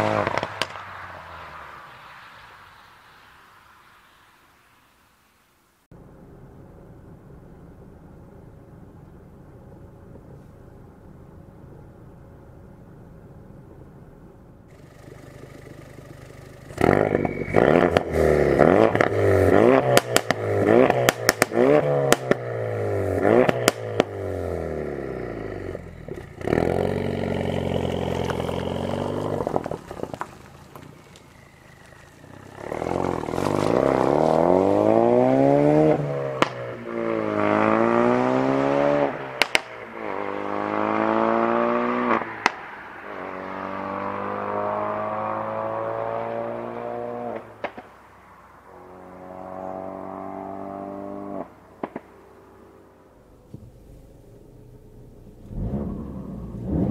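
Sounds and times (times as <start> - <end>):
car engine revving: 0.0 - 3.2, 14.7 - 47.9, 48.6 - 52.6, 53.2 - 56.9
exhaust cracks and pops: 0.1 - 1.2, 14.7 - 22.4, 26.1 - 34.6, 36.4 - 36.7, 39.4 - 39.8, 47.3 - 48.0, 51.8 - 52.2
car accelerating through gears: 14.7 - 30.2, 31.3 - 47.6, 48.9 - 51.6, 53.6 - 56.9.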